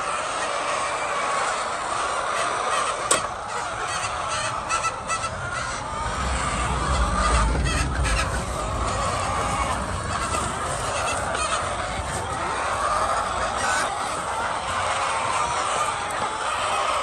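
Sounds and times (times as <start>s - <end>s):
hens clucking and squawking: 0.0s - 17.0s
low rumble: 3.6s - 15.5s.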